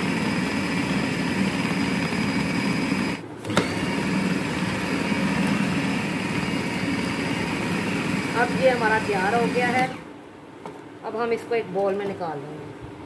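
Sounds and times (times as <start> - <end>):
food chopper motor running: 0.0 - 10.1.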